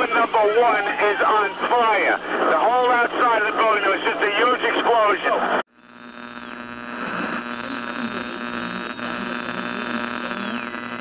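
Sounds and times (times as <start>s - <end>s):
steady droning hum: 5.7s - 11.0s.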